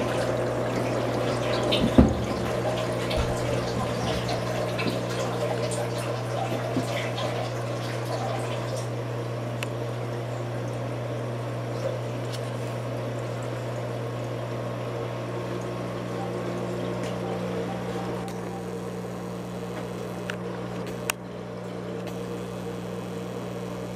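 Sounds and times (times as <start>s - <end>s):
water trickling and splashing: 0.0s - 9.4s
low pump hum: 0.0s - 23.9s.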